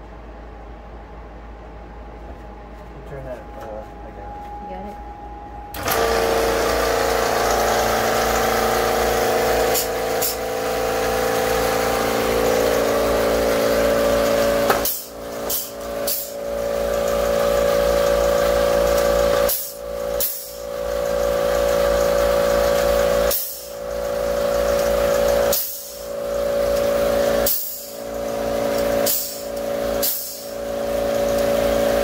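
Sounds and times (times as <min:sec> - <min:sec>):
epoxy gun hiss: 0:29.0 - 0:30.6.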